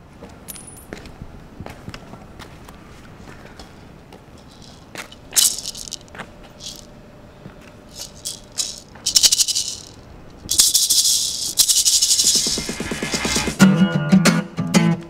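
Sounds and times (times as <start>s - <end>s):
maracas shaking: 4.4s - 6.9s, 7.9s - 13.6s.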